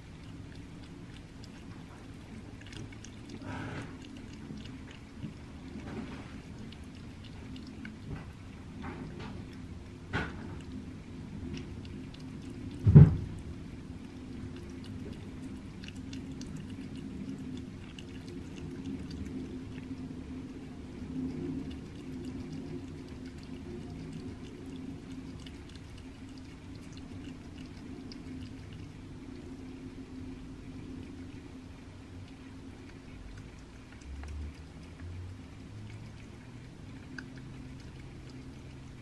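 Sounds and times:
cat chewing and licking meat: 0.0s - 39.0s
steady low hum: 0.0s - 39.0s
loud low thump: 12.8s - 13.3s.

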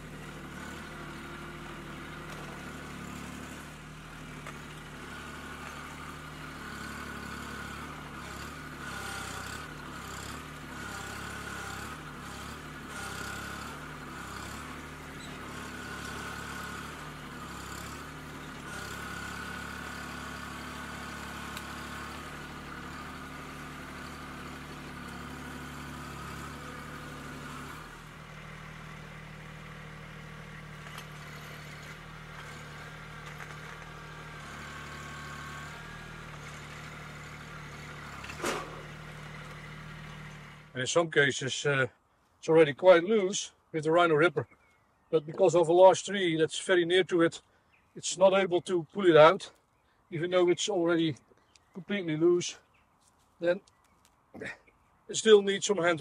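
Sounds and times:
tractor diesel engine under load: 0.0s - 49.5s, 50.1s - 52.7s, 54.4s - 56.0s.

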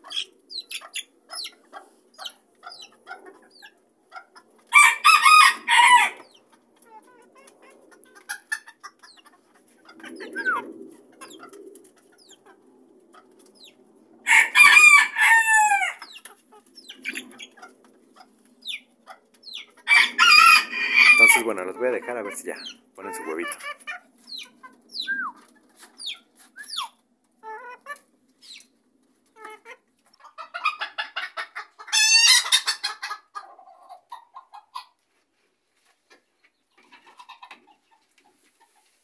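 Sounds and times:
hens clucking softly: 0.0s - 14.6s, 15.7s - 39.0s
rooster crowing: 4.7s - 6.2s, 14.3s - 16.0s, 19.9s - 21.5s.

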